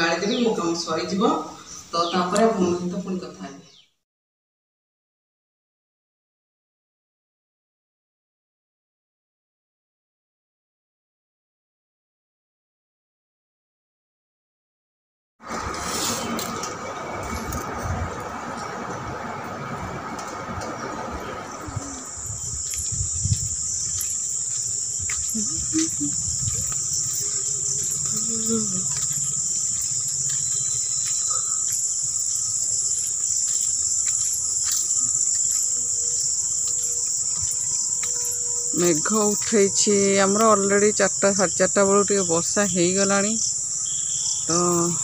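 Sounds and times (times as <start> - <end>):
crickets chirping: 0.0 - 3.8, 15.5 - 45.0.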